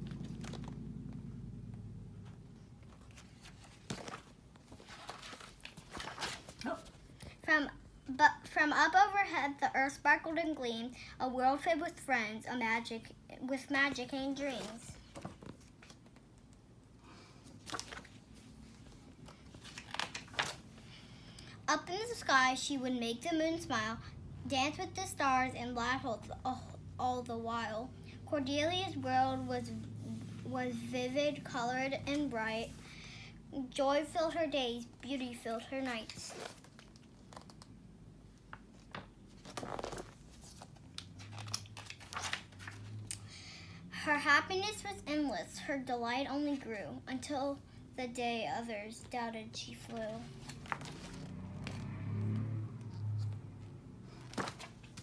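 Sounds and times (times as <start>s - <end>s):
paper page rustling: 0.0s - 0.8s, 2.8s - 7.0s, 14.3s - 16.2s, 17.5s - 20.8s, 35.8s - 37.7s, 38.5s - 43.0s, 49.8s - 51.9s, 54.2s - 55.0s.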